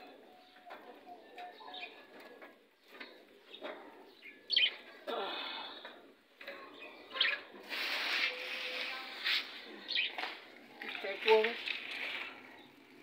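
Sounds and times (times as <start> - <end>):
parrots chirping: 7.0 - 8.7
rustle: 7.6 - 12.7.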